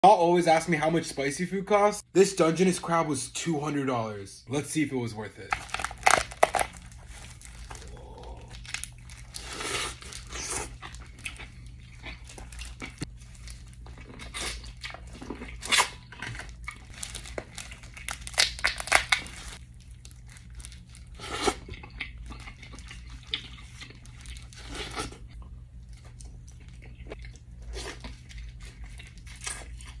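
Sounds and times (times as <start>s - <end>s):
steady low hum: 4.0s - 30.0s
plastic gloves crinkling: 5.5s - 21.2s, 22.8s - 24.7s
crunching crab shell: 5.5s - 25.3s
chewing: 7.6s - 16.9s, 21.4s - 30.0s.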